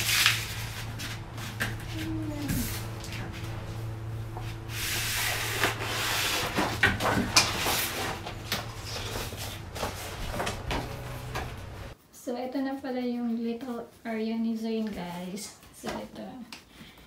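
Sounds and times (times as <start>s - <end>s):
paper poster rustling and crackling: 0.0s - 12.0s.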